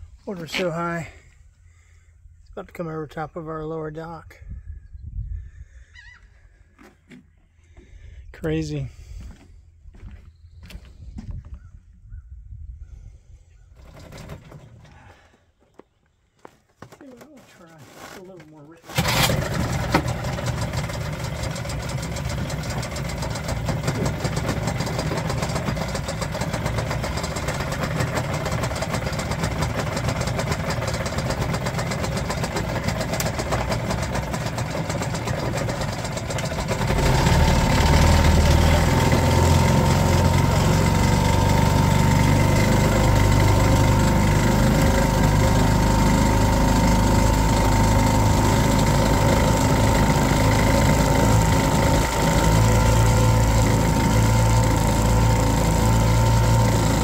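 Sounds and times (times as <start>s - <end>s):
boat motor running: 13.8s - 15.1s, 17.0s - 57.0s.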